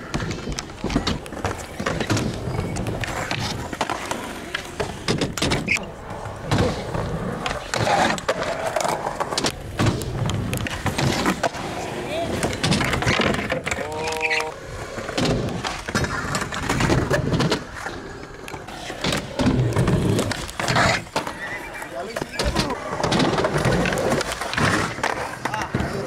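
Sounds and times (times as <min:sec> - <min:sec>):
skateboard clacking on ground: 0:00.0 - 0:26.0
skateboard wheels rolling on concrete: 0:00.0 - 0:26.0.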